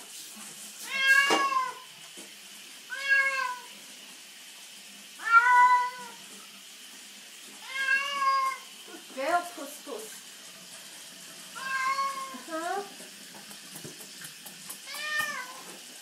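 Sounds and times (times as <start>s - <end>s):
cat meowing in protest: 0.8s - 1.9s, 2.9s - 3.7s, 5.2s - 6.2s, 7.6s - 8.7s, 11.6s - 12.5s.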